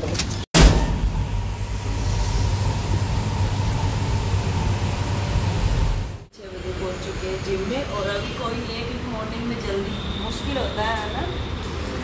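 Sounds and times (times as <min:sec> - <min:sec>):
elevator hum: 0:00.6 - 0:07.8.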